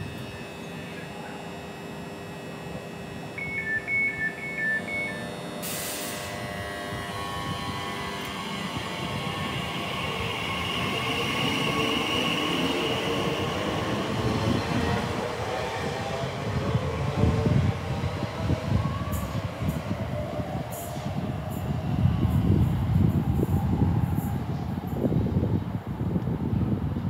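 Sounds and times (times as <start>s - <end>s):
electric train motor whine: 0.0s - 26.2s
door warning beeps: 3.3s - 6.3s.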